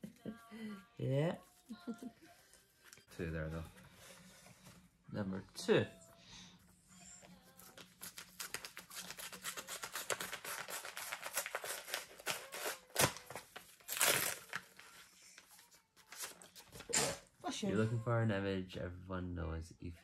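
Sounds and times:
paper rustling: 7.4 - 17.1
paper envelope tearing: 7.7 - 15.0.

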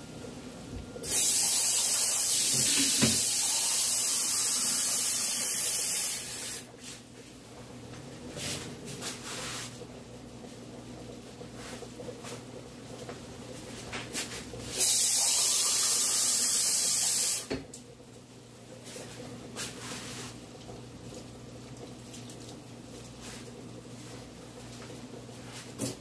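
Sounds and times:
kitchen tap running: 1.0 - 6.7, 14.7 - 17.6.

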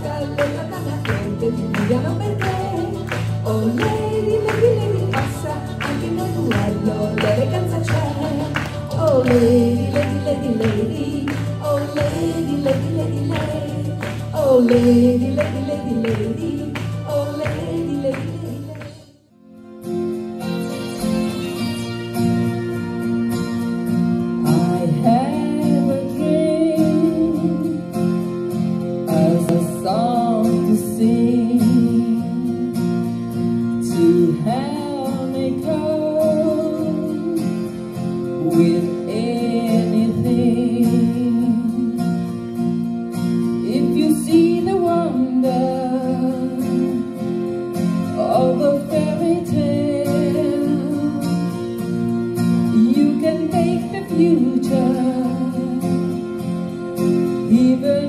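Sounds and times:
woman singing into a microphone: 0.0 - 19.2, 24.2 - 58.0
instrumental music: 0.0 - 58.0.

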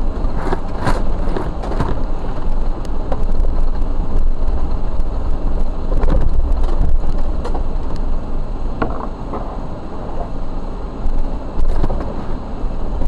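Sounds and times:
vehicle engine rumbling: 0.0 - 13.0
knocks and rattles: 8.8 - 9.7.

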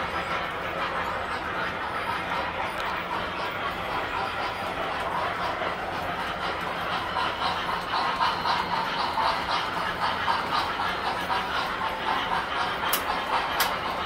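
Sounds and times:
model train motor hum: 0.0 - 14.0
model train wheel clatter: 0.0 - 14.0
sharp ticks: 12.6 - 14.0.

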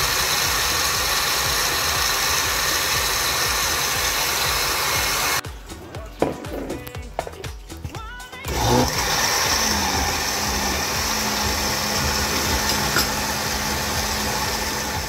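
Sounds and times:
electric blender running: 0.0 - 5.4, 8.5 - 15.0.

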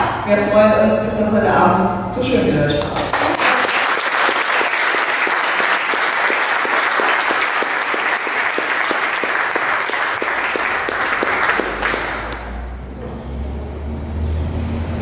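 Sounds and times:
audience applauding: 2.8 - 12.6.

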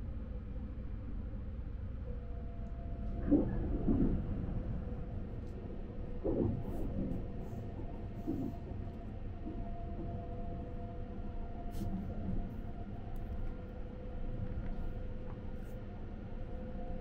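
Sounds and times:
train rumble and hum: 0.0 - 17.0.

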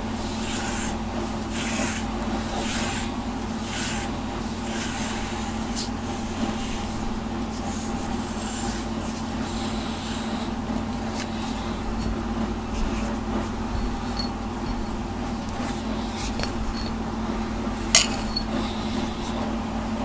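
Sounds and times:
steady low hum: 0.0 - 20.0
brush strokes on cat fur: 0.1 - 20.0.

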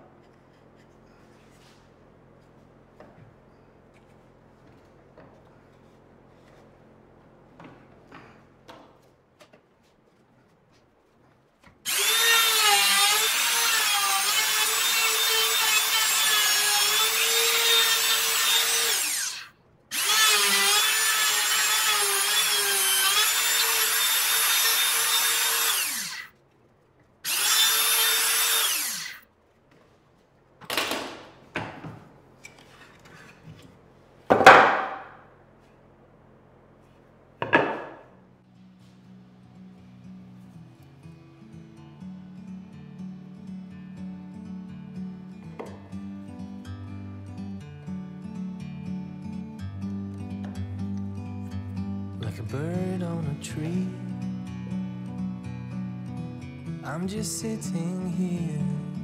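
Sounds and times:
router cutting wood: 11.9 - 26.3, 27.2 - 29.2
wooden knocks: 37.4 - 38.0.

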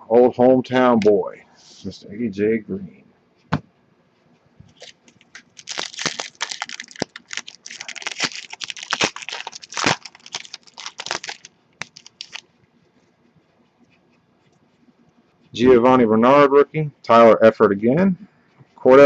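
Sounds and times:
foil wrapper crinkling and tearing: 4.8 - 12.5.

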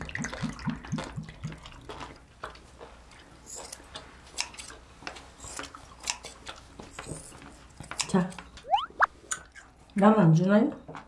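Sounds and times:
faint chewing: 0.1 - 8.5.

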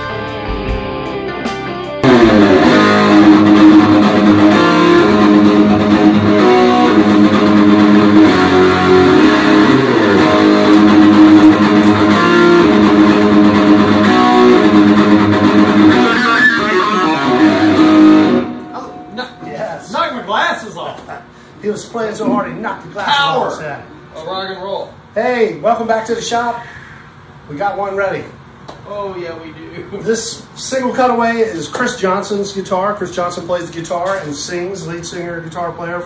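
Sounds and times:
electric guitar rock chords: 0.0 - 20.0.

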